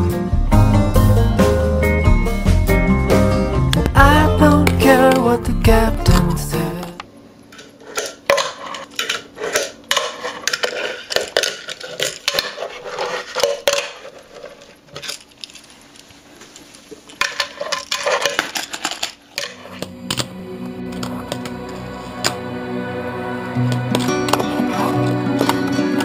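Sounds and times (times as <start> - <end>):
music: 0.0 - 7.0, 19.6 - 26.0.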